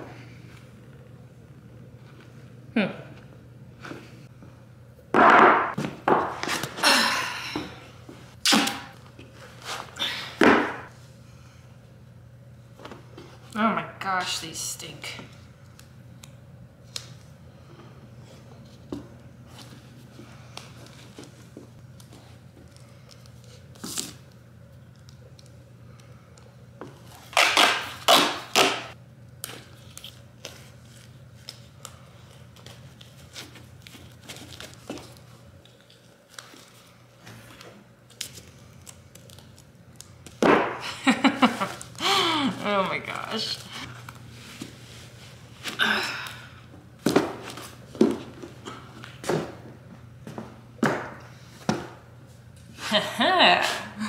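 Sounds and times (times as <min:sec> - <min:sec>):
tape ripping off a roll: 0:27.1 - 0:31.6
duct tape ripping off roll: 0:27.2 - 0:28.9
tape crinkling and tapping: 0:37.5 - 0:40.4.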